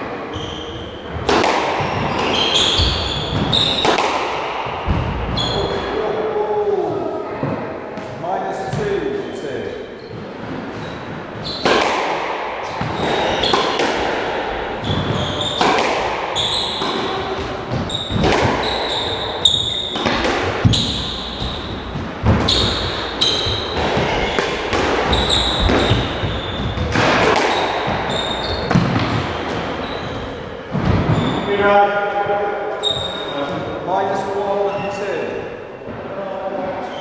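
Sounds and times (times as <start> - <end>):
squash ball hitting rackets and walls: 0.0 - 31.7, 32.3 - 33.7
shoes squeaking on wooden floor: 1.8 - 4.0, 4.8 - 5.9, 9.8 - 11.8, 14.8 - 15.8, 16.4 - 31.7, 32.8 - 33.7.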